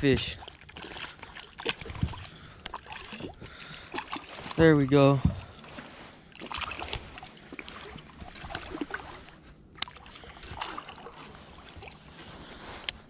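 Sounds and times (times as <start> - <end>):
water splashing and sloshing: 0.0 - 13.0
knocks and clicks on hull: 1.6 - 5.8.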